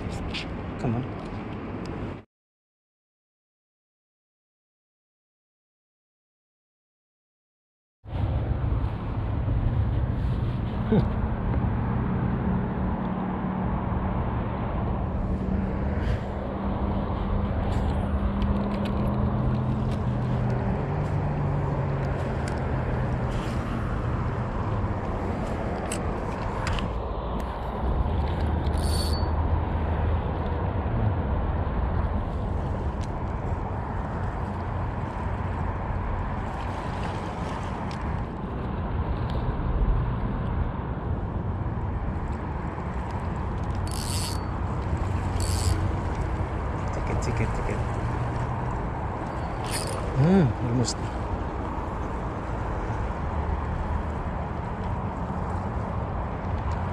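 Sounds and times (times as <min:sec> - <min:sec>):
low wind rumble: 0:08.1 - 0:56.9
fishing reel whirring: 0:28.6 - 0:29.3, 0:43.6 - 0:46.2, 0:49.6 - 0:50.1.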